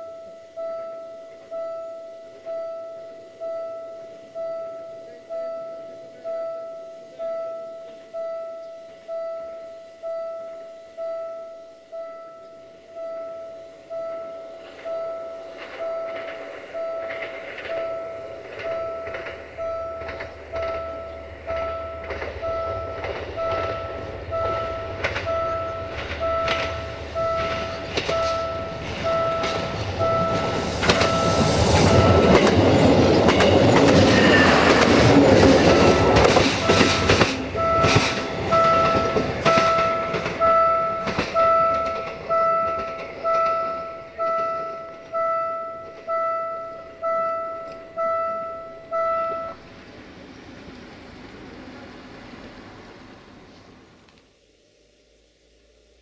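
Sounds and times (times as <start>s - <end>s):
level-crossing warning bell ringing: 0.0s - 50.0s
train passing: 11.8s - 54.0s
train wheels clicking over rail joints: 14.6s - 48.2s.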